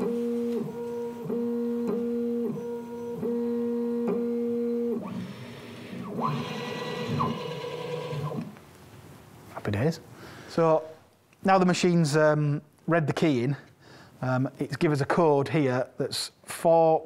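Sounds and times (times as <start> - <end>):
stepper motors whining: 0.0 - 8.6.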